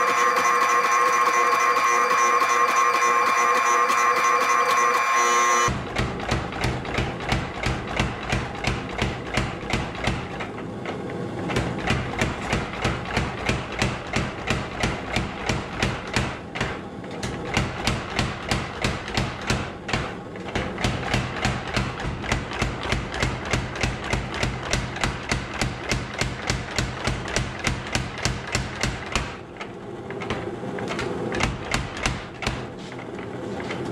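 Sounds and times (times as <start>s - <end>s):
power hammer blows on steel: 0.0s - 10.5s.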